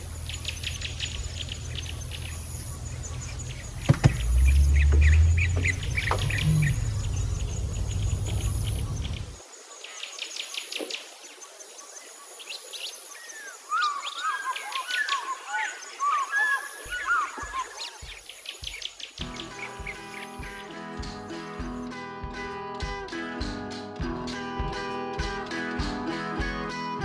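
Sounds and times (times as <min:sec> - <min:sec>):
car road and engine rumble: 0:00.0 - 0:09.4
birds chirping and whistling: 0:00.0 - 0:22.0.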